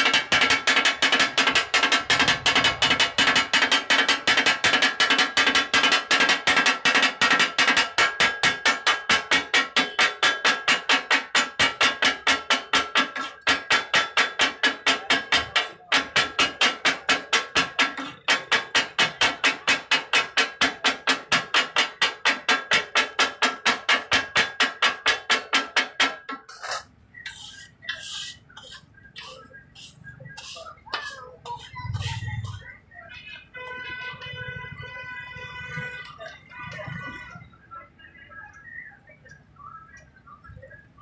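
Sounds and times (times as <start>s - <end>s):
metal spatulas clanging on griddle: 0.0s - 32.8s.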